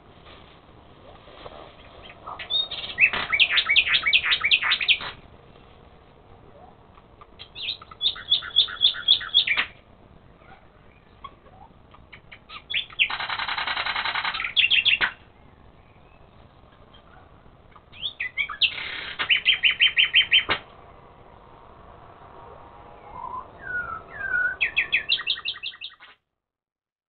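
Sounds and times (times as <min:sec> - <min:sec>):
songbird singing: 0:01.0 - 0:26.2.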